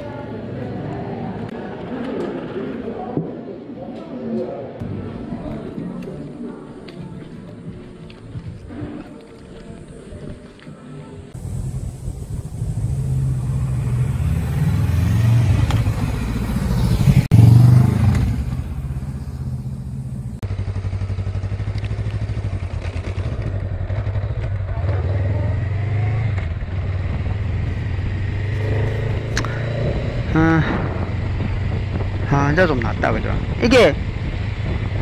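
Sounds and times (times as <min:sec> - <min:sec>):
motorcycle engine running: 0:11.4 - 0:35.0.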